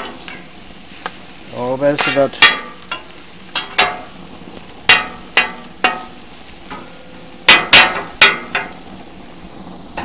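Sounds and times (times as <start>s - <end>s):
onions and meat sizzling: 0.0s - 10.0s
metal spatula scraping griddle: 2.0s - 4.2s, 4.8s - 10.0s.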